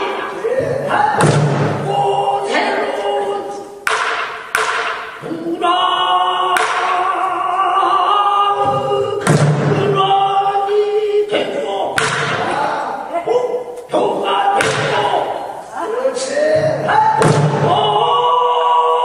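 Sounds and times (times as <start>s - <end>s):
barrel drum strokes: 0.0s - 2.0s.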